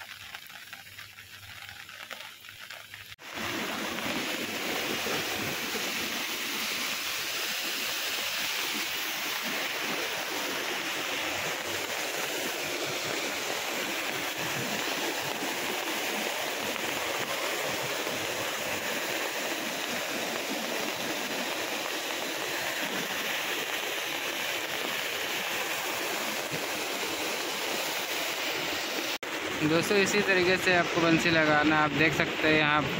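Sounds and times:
rain falling on water: 0.0 - 32.6.

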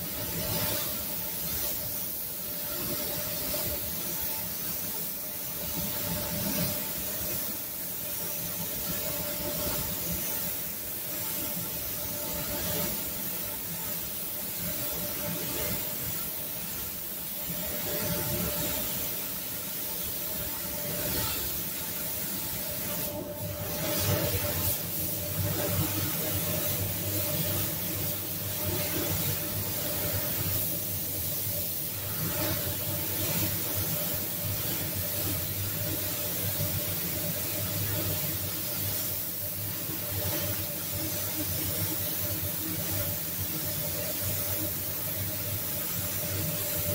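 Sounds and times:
spray gun hissing: 0.0 - 46.9.

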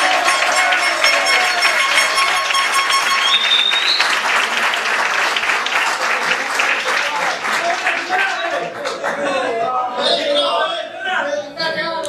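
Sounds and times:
crowd applauding: 0.0 - 9.4.

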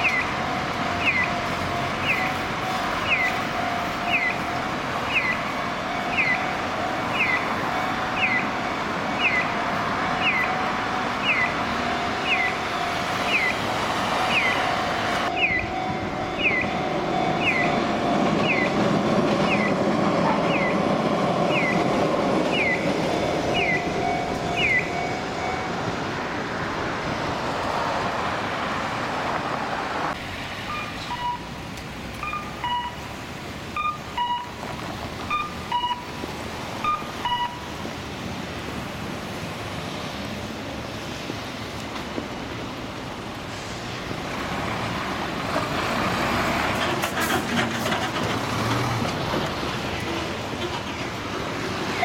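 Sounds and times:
crossing signal chirping: 0.0 - 26.1, 30.6 - 31.6, 32.2 - 37.9
road traffic: 0.0 - 52.0
two-note electronic beeps: 15.3 - 18.8, 22.5 - 25.7, 30.7 - 31.5, 32.2 - 33.0, 33.8 - 34.6, 35.3 - 36.1, 36.8 - 37.6.

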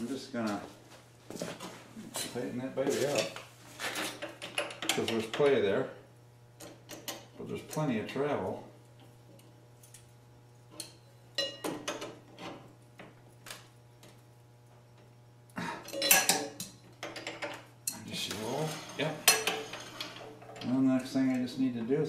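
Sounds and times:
tools clinking on steel frame: 15.8 - 21.5.

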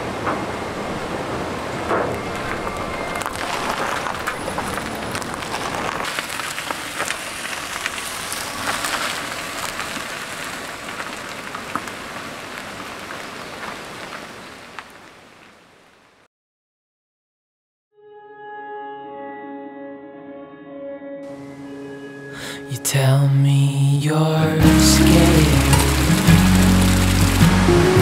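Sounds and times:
tyres crunching over gravel: 1.7 - 15.1, 24.6 - 28.0.

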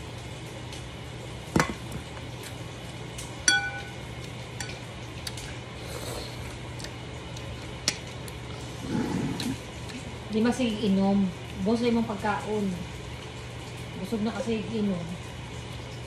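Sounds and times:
low steady hum: 0.0 - 16.0
metal spoon clinking on plate: 3.5 - 4.0.

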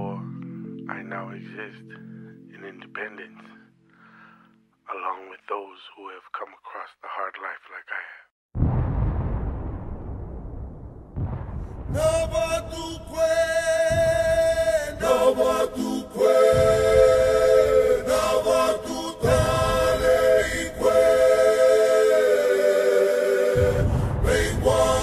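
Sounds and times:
group singing a cappella: 12.0 - 25.0.

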